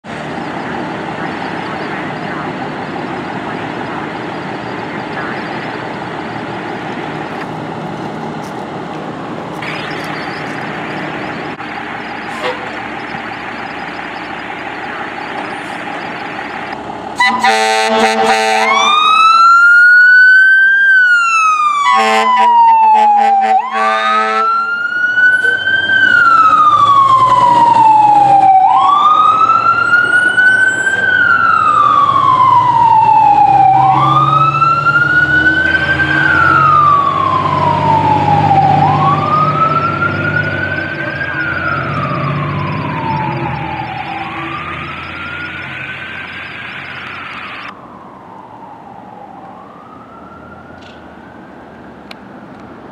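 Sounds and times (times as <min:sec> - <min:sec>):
fire engine siren wailing: 0:00.0 - 0:08.4, 0:09.1 - 0:52.4
truck engine rumbling: 0:00.0 - 0:52.9
air horn blast: 0:17.2 - 0:19.1, 0:21.9 - 0:24.6.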